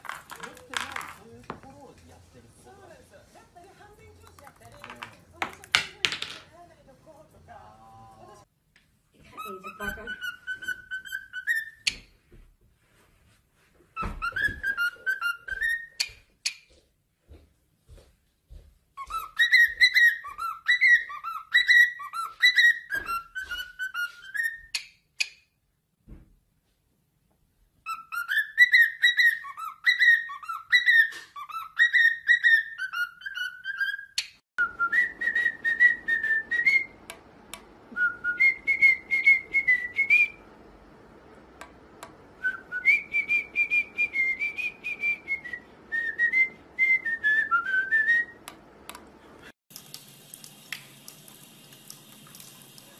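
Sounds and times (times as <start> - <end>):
cockatiels whistling: 9.4 - 12.0, 14.0 - 16.1, 19.0 - 24.8, 27.9 - 37.0, 38.0 - 40.4, 42.4 - 48.4.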